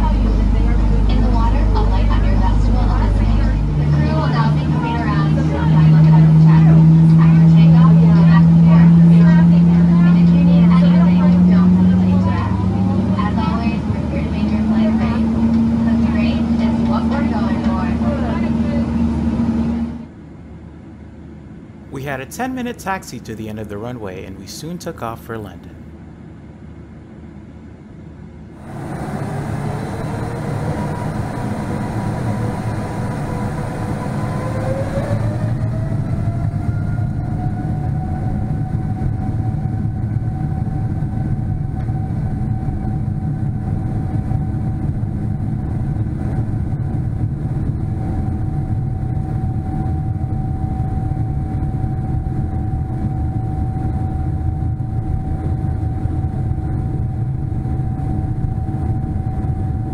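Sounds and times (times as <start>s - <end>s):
heavy low rumble: 0.0s - 20.1s
jet engine whine: 0.0s - 59.9s.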